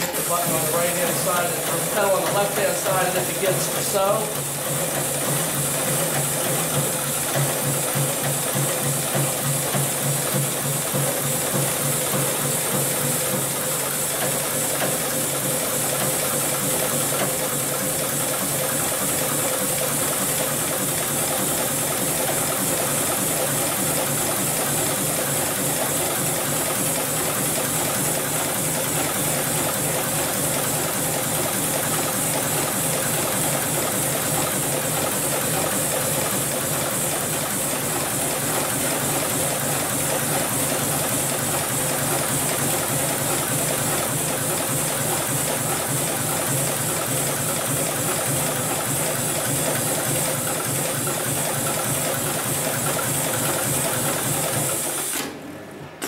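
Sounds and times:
sewing machine stitching: 0:00.0 - 0:55.5.

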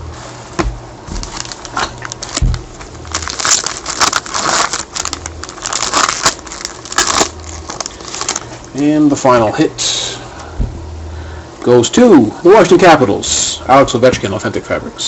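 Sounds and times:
wrapper tearing and crinkling: 0:01.2 - 0:08.7.

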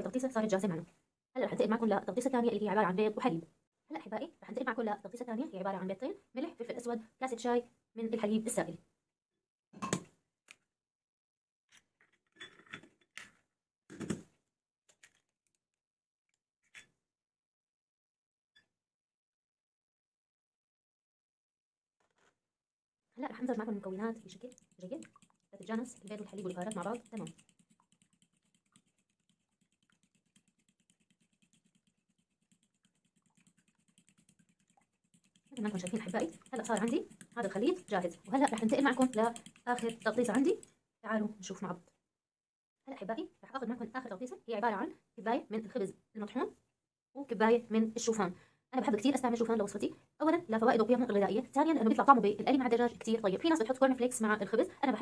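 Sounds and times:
utensil beating eggs in glass bowl: 0:23.3 - 0:40.7.

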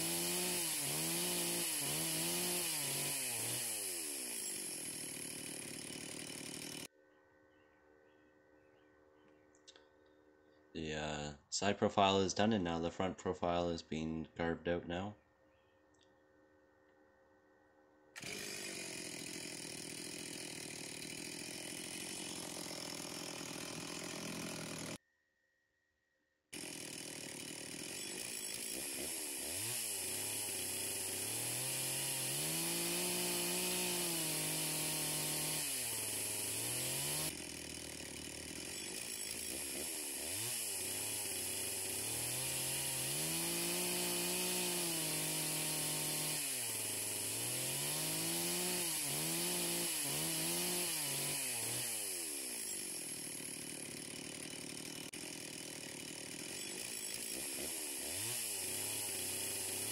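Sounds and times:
chainsaw cutting log: 0:00.0 - 0:06.9, 0:18.2 - 0:25.0, 0:26.6 - 0:59.9.

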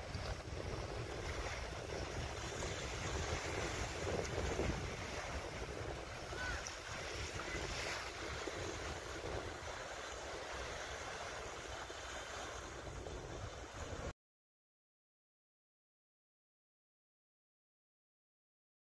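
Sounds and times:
waves washing onto shore: 0:00.0 - 0:14.1
wind buffeting microphone: 0:00.0 - 0:14.1.

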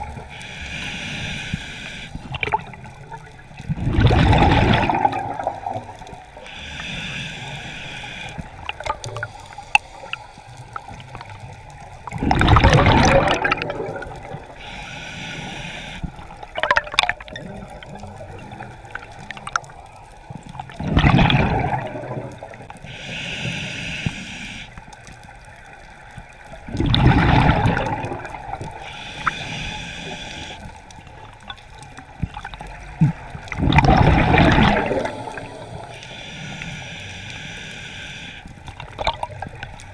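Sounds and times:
regulator inhalation hiss: 0:00.1 - 0:02.4, 0:06.3 - 0:11.3, 0:14.4 - 0:16.4, 0:22.8 - 0:24.9, 0:28.7 - 0:30.8, 0:34.8 - 0:38.7
gurgling exhaled bubbles: 0:02.2 - 0:06.9, 0:10.8 - 0:14.7, 0:16.1 - 0:22.8, 0:26.4 - 0:36.0, 0:38.7 - 0:39.9.

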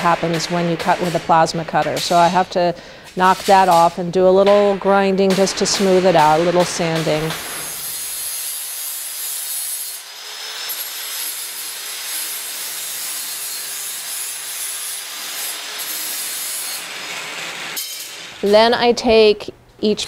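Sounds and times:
angle grinder grinding steel: 0:07.0 - 0:18.4.

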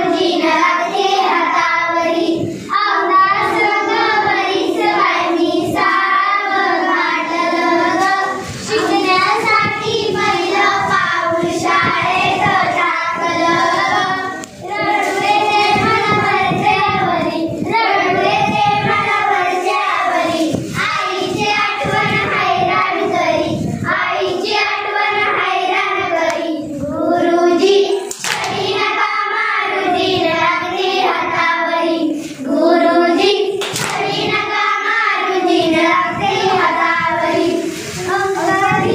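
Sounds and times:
children singing: 0:00.0 - 0:38.9
hand claps: 0:28.1 - 0:28.6, 0:33.6 - 0:34.1.

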